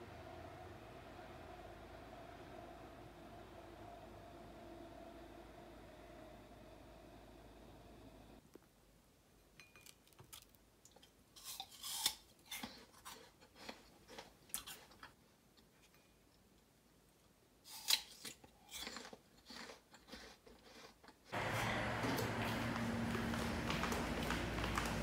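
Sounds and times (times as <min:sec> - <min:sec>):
apple crunching: 0:17.7 - 0:22.4.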